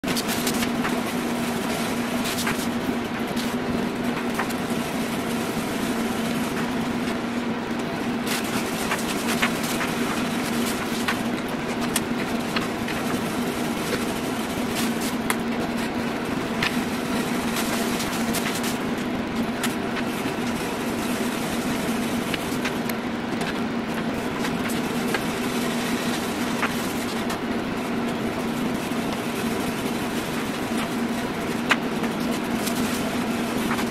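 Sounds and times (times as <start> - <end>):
laser engravers and fans humming: 0.0 - 33.9
clicks and rustles of handling: 2.2 - 4.8, 7.8 - 20.6, 29.0 - 33.9.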